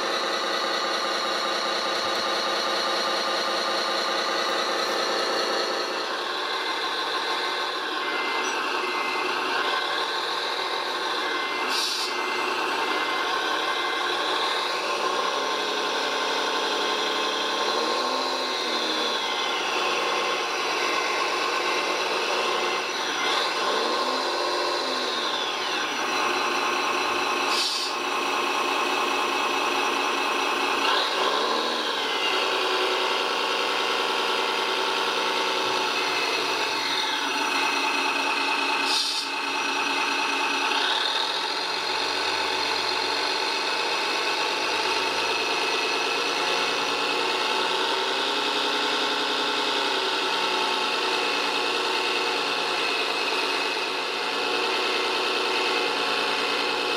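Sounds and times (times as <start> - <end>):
model crane motors whining: 0.0 - 56.9.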